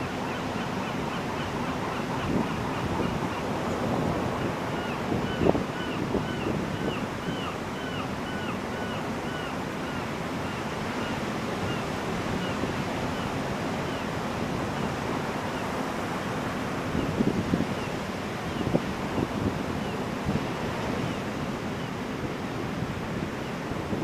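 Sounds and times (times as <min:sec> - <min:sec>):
ocean surf breaking on beach: 0:00.0 - 0:24.0
wind buffeting microphone: 0:01.5 - 0:07.4, 0:16.7 - 0:24.0.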